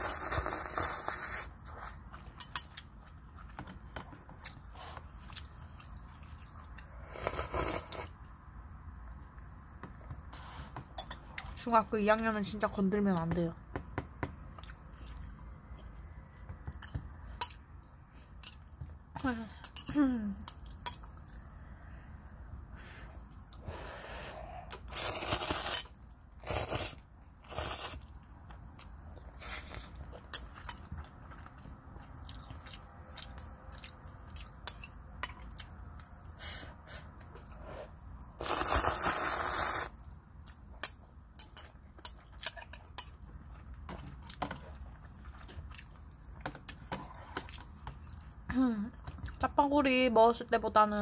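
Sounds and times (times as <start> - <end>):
noodles slurped: 0.0 - 2.1, 38.4 - 40.0
chewing: 1.6 - 7.0, 14.5 - 17.6, 27.7 - 36.4, 40.0 - 49.4.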